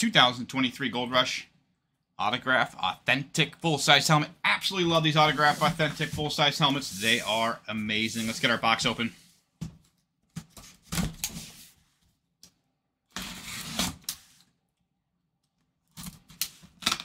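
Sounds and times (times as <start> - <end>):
blade cutting cardboard box: 13.1 - 14.2.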